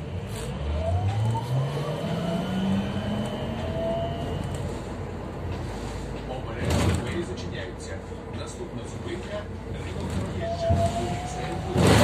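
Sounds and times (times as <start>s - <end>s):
trolleybus electric drive whining: 0.0s - 12.0s.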